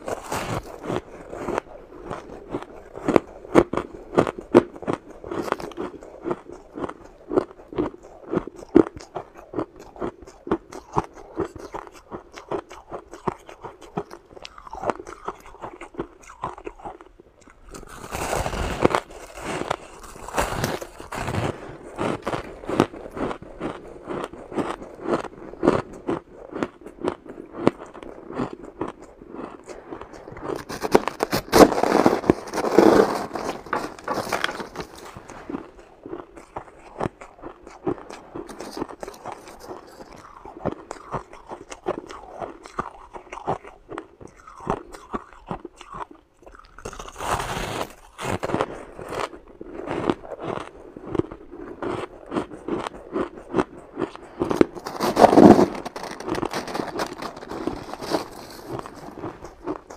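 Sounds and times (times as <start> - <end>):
person crunching shaved ice: 0.0 - 59.9.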